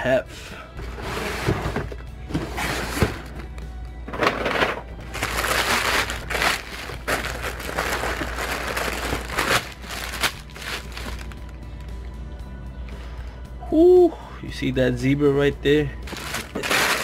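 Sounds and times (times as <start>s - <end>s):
tissue paper crinkling: 5.1s - 11.5s, 16.0s - 17.0s.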